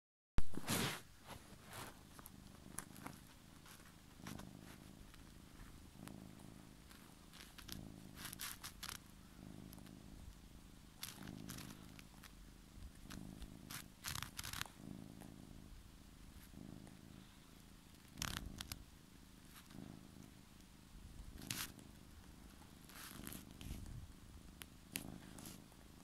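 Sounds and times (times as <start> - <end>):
cat purring: 0.4 - 26.0
claws scratching on fabric: 0.6 - 9.1, 11.0 - 15.3, 18.0 - 18.8, 19.5 - 20.0, 21.3 - 21.9, 22.5 - 24.0, 24.9 - 25.7.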